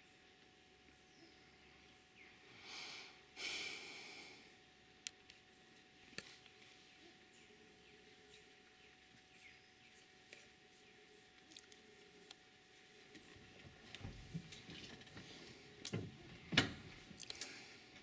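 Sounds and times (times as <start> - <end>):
faint high bird chirps: 6.8 - 12.3.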